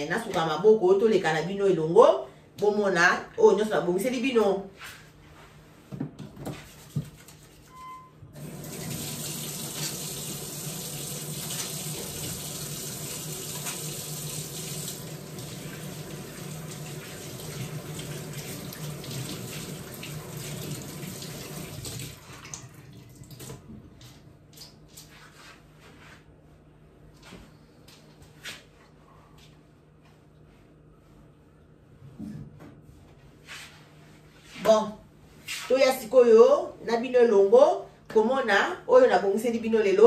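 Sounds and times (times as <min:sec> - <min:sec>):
tap running into sink: 0:08.6 - 0:10.4.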